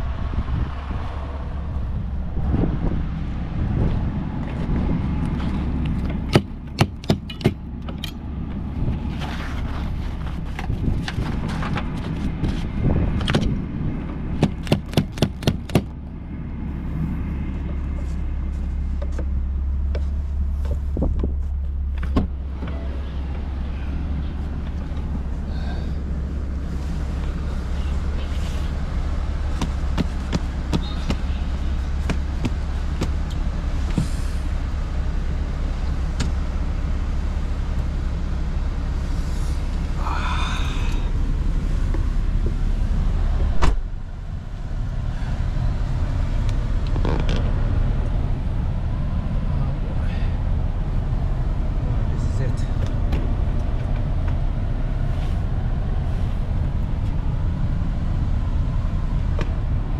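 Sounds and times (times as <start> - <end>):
vehicle engine rumbling: 0.0 - 59.9
loud thump: 43.5 - 43.9.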